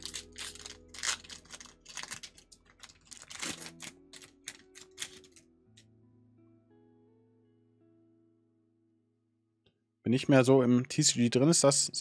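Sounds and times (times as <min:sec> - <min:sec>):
cards clicking and snapping: 0:00.0 - 0:05.4
faint background music: 0:00.0 - 0:08.6, 0:10.1 - 0:12.0.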